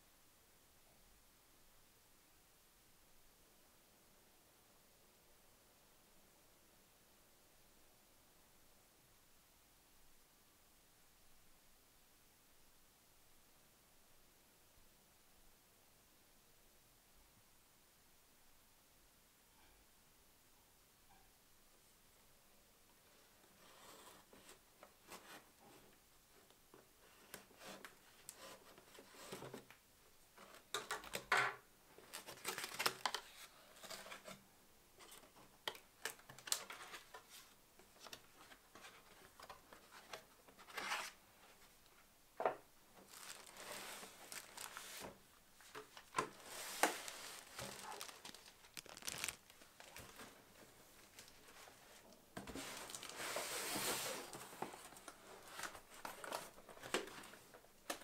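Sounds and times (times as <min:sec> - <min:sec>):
packing tape tearing: 0:46.2 - 0:50.1.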